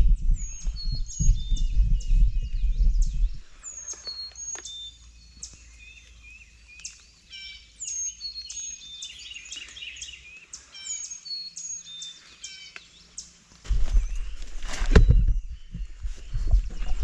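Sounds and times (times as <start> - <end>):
songbirds chirping and trilling: 0.0 - 17.0.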